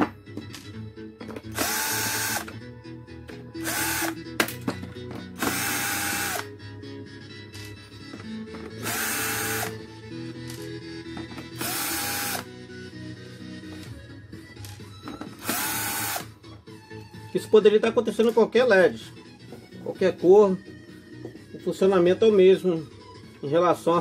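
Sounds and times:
background music: 0.0s - 24.0s
cordless screwdriver whine: 1.5s - 2.6s, 3.6s - 4.2s, 5.4s - 6.5s, 8.7s - 9.8s, 11.6s - 12.5s, 15.4s - 16.3s.

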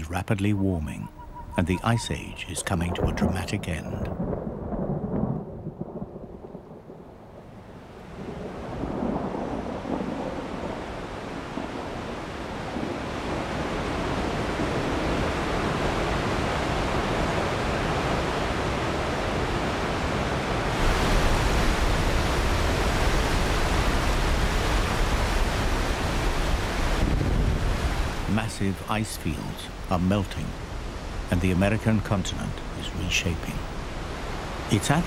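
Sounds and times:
waterfall rushing: 15.4s - 35.0s.

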